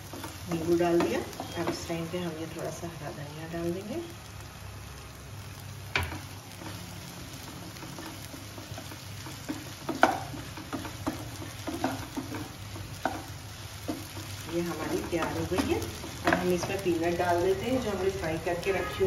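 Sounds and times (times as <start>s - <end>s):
faint frying sizzle: 0.0s - 19.0s
wooden spatula stirring in pan: 0.0s - 19.0s
spatula knocking against pan: 8.5s - 14.4s.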